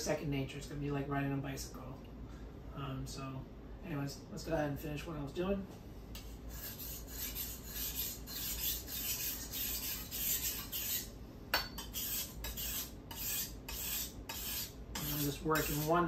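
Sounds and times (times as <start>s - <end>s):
knife scraping on whetstone: 6.2s - 16.0s.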